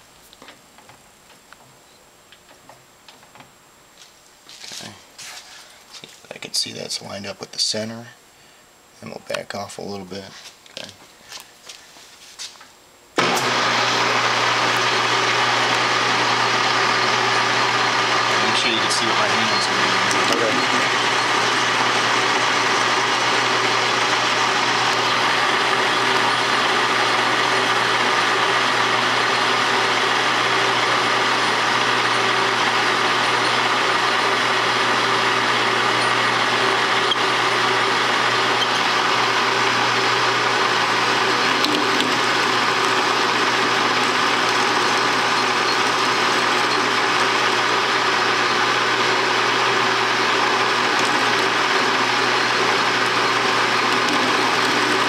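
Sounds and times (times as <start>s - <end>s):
metal lathe running: 13.2s - 55.0s.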